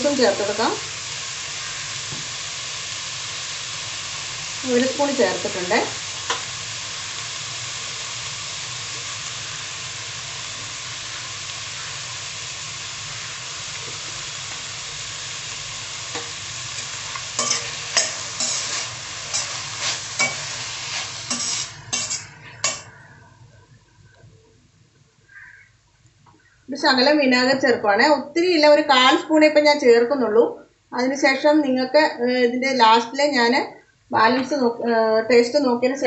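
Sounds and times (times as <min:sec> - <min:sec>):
vegetables sizzling in a pan: 0:00.0 - 0:23.4
utensil scraping a pan: 0:16.2 - 0:22.9.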